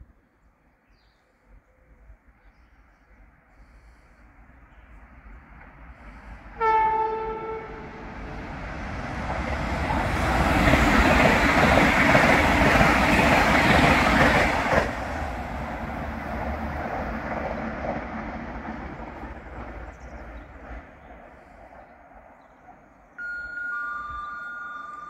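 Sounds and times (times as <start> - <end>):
high-speed train passing: 4.1 - 25.0
train horn blast: 6.6 - 8.1.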